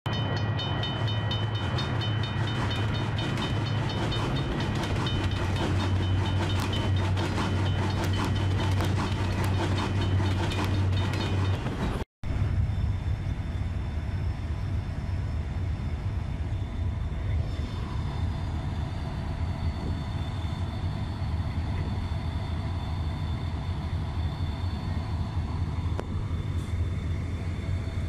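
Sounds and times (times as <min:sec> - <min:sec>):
crossing bell ringing: 0:00.1 - 0:12.0
train rumbling: 0:00.1 - 0:28.0.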